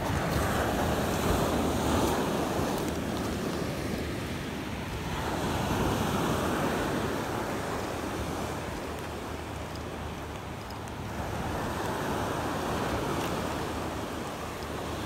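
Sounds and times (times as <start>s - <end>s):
waves breaking on pebble beach: 0.0s - 15.0s
wind on microphone: 0.0s - 15.0s.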